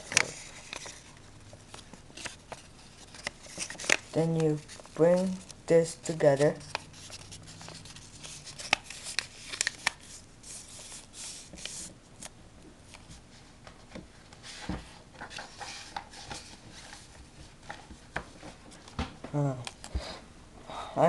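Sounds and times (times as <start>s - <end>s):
paper being folded: 0.0s - 12.3s.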